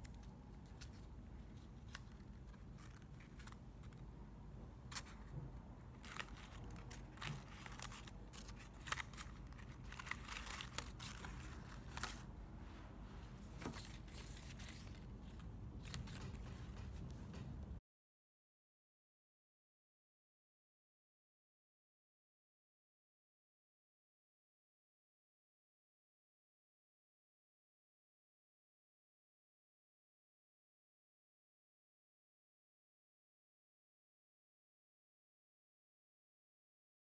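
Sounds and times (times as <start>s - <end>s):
paper rustling and crinkling: 0.0s - 4.0s, 4.9s - 17.7s.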